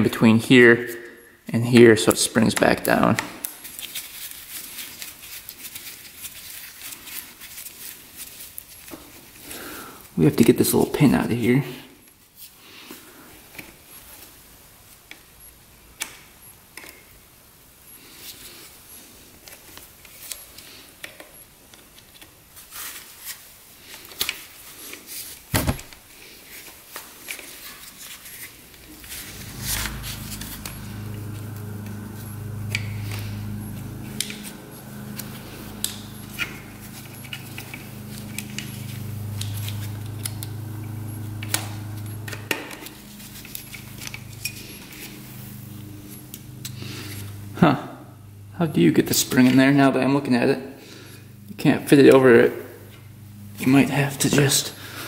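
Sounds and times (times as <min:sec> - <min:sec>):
low steady hum: 0:28.6 - 0:55.0.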